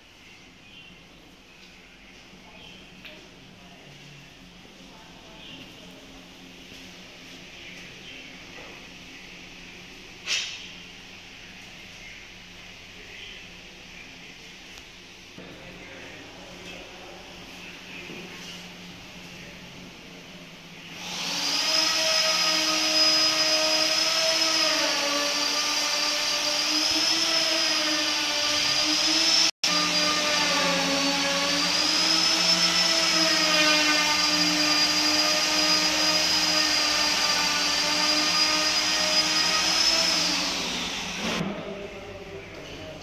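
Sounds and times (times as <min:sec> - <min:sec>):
electric motor whine: 0:21.0 - 0:41.4.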